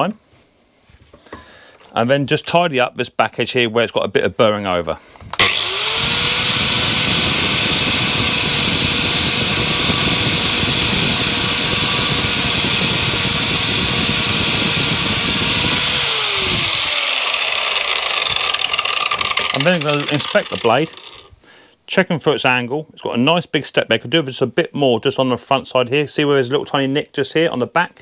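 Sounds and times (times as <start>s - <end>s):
angle grinder motor whine: 5.3s - 21.4s
abrasive disc grinding steel: 5.4s - 21.3s.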